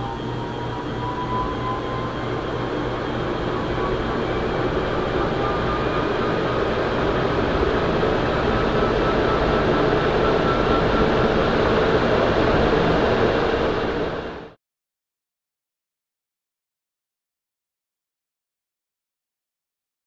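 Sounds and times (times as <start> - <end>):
ceiling fan air rush: 0.0 - 14.6
fan motor whine: 0.0 - 14.6.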